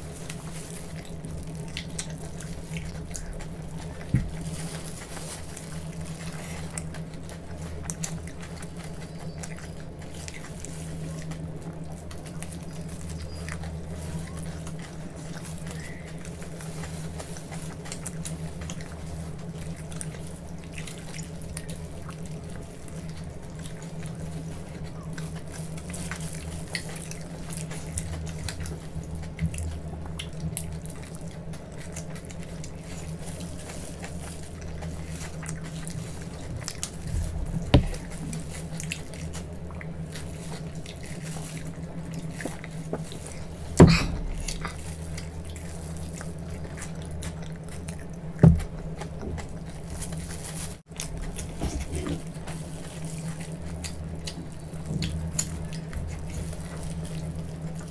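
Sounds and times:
people chewing: 0.0 - 57.9
low hum: 34.5 - 57.8.

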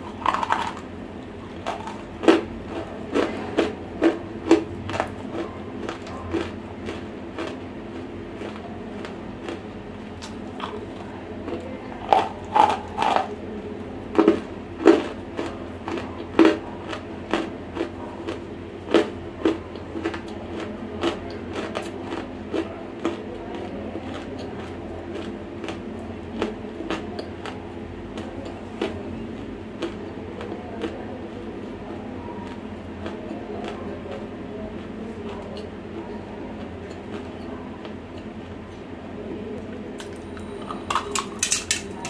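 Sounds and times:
crunchy chewing: 0.0 - 38.9, 39.6 - 42.0.

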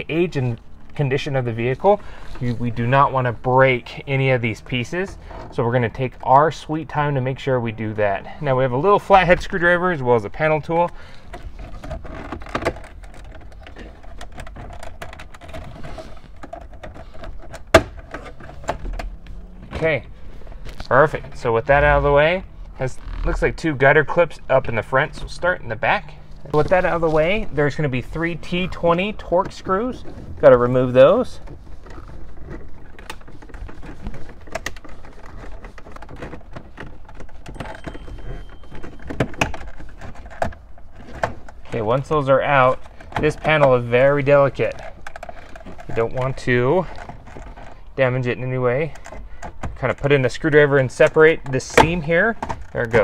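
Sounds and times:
plastic trim clicking and creaking: 10.6 - 23.9, 31.0 - 53.0.

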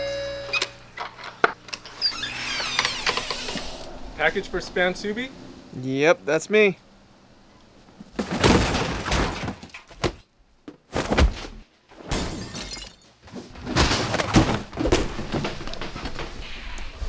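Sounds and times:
cardboard parcels thudding down: 8.1 - 12.4, 13.3 - 16.4.

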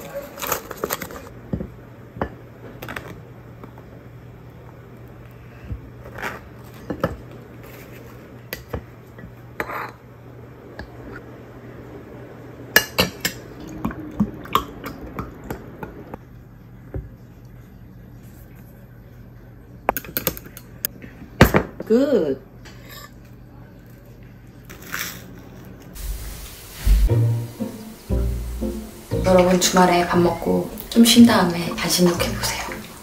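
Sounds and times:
foil wrapper crinkling: 0.0 - 1.3.

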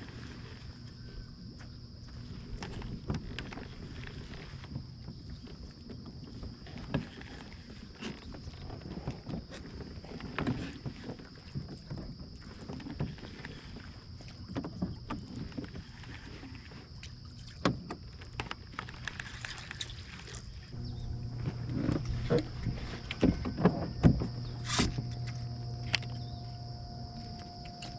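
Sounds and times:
water lapping around hull: 0.0 - 27.9
faint high-pitched whine: 20.5 - 27.9
low rumble: 20.7 - 27.9.

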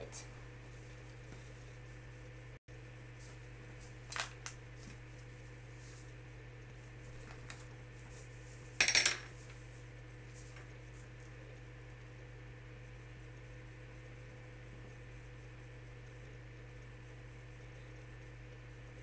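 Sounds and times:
small objects clattering on desk: 8.8 - 9.3.

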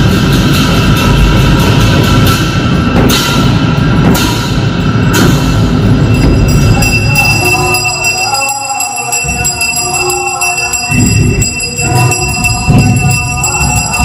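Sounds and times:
heavy drum beats: 0.0 - 14.0
brass bells ringing: 5.8 - 14.0.

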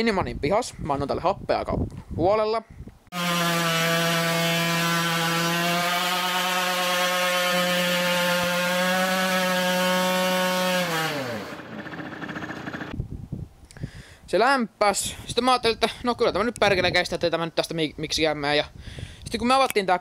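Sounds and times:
two-stroke motorcycle engine revving: 3.6 - 12.9.

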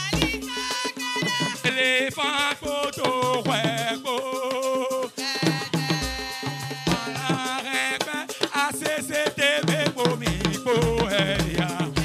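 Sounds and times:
shaken percussion: 0.0 - 12.0
drums: 5.4 - 12.0.

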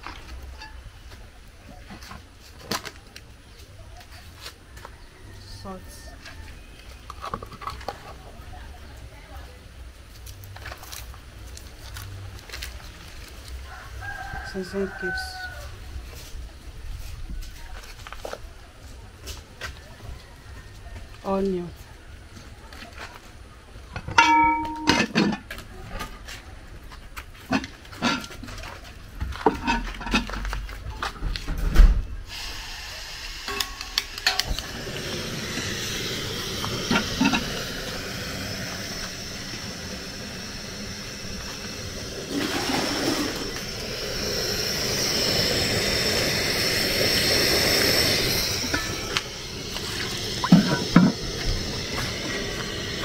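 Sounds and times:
cooking pot hissing: 11.7 - 17.2, 27.4 - 28.6, 29.4 - 30.5, 32.1 - 53.0
pot and utensils clinking: 24.0 - 25.5, 33.5 - 34.6.

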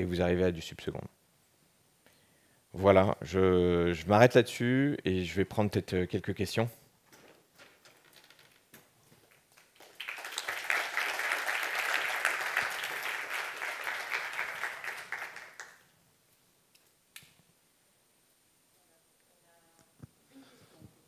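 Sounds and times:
audience applauding: 9.3 - 15.8.

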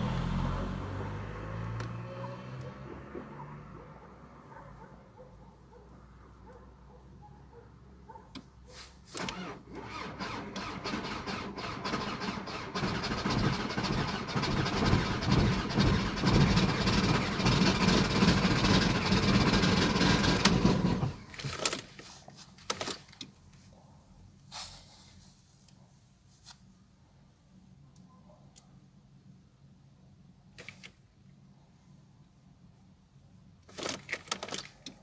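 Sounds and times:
diesel engine starting and idling: 9.1 - 21.7.

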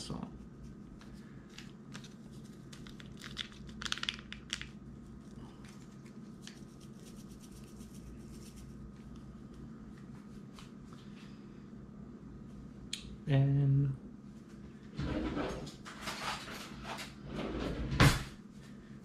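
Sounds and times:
low steady hum: 0.0 - 19.0
packet tearing and crinkling: 1.9 - 4.8.

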